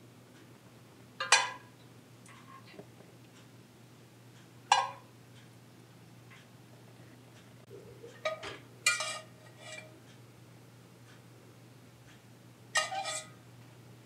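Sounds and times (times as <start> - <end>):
kitchenware clinking: 1.2 - 1.7, 8.2 - 9.9.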